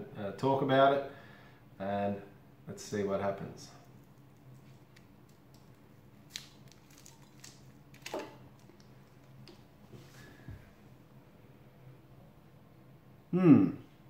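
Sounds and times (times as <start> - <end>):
low steady hum: 0.0 - 14.0
plastic wrapper crinkling: 3.8 - 9.8.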